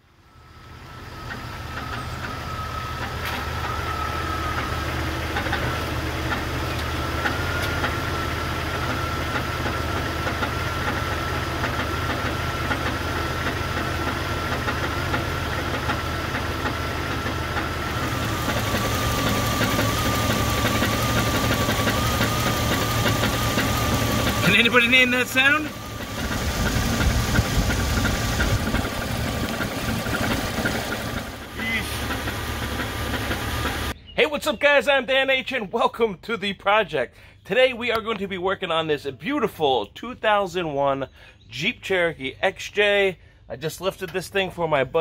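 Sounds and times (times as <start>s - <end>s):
engine rod knock clunking: 11.6s - 24.7s, 25.8s - 34.0s.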